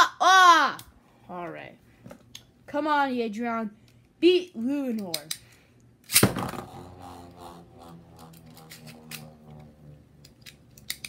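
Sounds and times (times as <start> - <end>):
spinning top whirring: 6.4 - 11.0.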